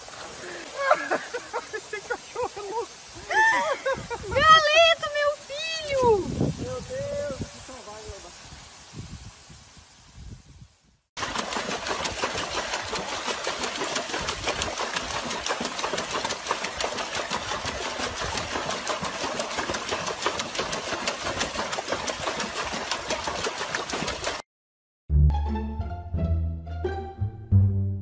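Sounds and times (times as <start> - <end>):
dog splashing in water: 11.2 - 24.4.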